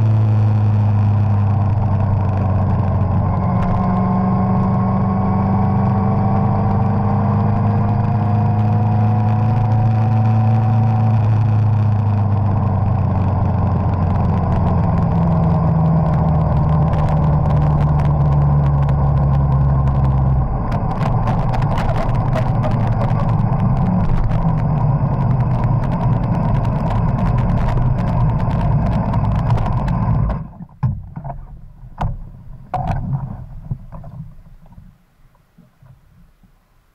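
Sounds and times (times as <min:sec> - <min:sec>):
motorcycle engine running: 0:00.0 - 0:30.6
road and wind noise: 0:00.0 - 0:36.9
clicks and knocks: 0:16.8 - 0:34.9.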